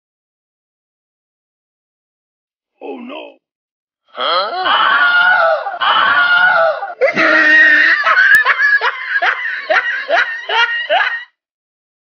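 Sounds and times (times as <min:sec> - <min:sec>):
man screaming in fright: 0:04.2 - 0:08.4.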